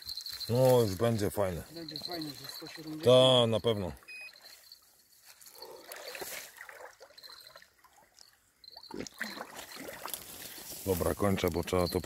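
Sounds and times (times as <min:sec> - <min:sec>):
crickets chirping: 0:00.0 - 0:12.0
water splashing and sloshing: 0:03.9 - 0:11.6.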